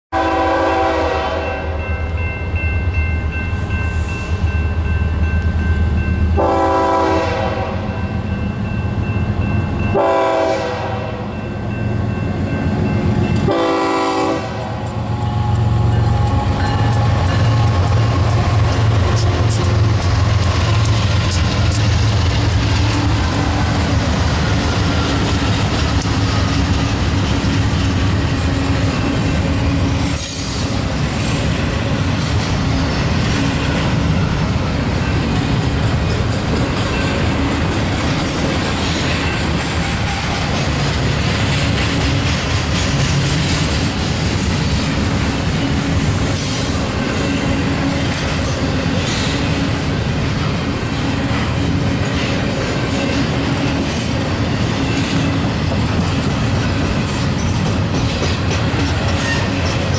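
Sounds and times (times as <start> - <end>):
train air horn blasts: 0.1 - 1.9, 6.4 - 8.0, 9.9 - 11.4, 13.4 - 20.9
diesel locomotive rumble: 2.1 - 59.9
train wheels clattering over rail joints: 15.5 - 59.9.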